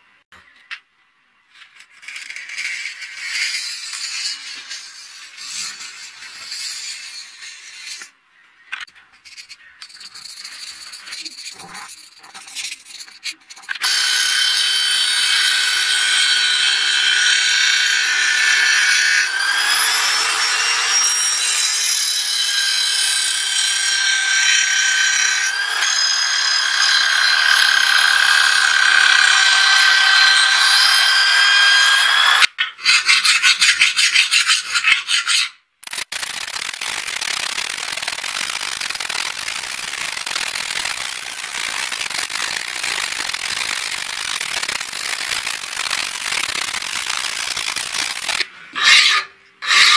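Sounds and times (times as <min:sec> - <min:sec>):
bench grinder grinding blade: 0:13.7 - 0:32.5, 0:35.9 - 0:49.9.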